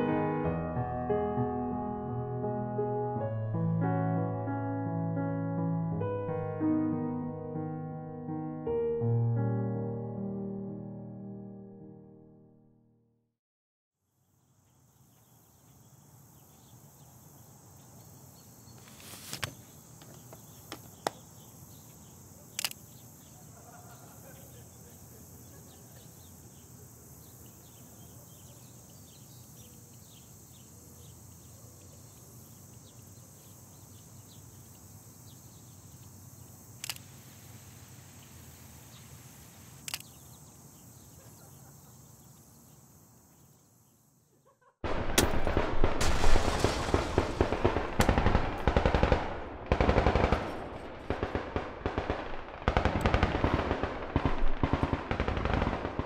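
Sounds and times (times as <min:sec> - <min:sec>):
insects chirping: 0:14.0 - 0:56.0
sharp cracks: 0:36.8 - 0:37.1, 0:44.9 - 0:56.0
machine-gun fire: 0:44.8 - 0:56.0.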